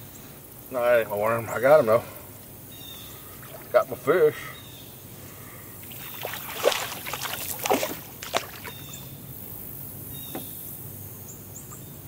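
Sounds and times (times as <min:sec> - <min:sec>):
fish splashing in water: 0:03.3 - 0:03.8, 0:05.8 - 0:09.1.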